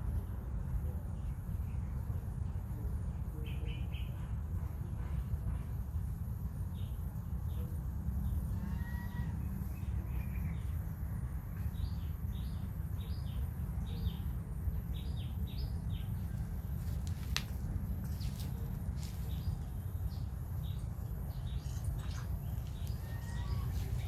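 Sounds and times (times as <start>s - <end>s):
steady low rumble: 0.0s - 24.0s
small birds chirping: 11.6s - 24.0s.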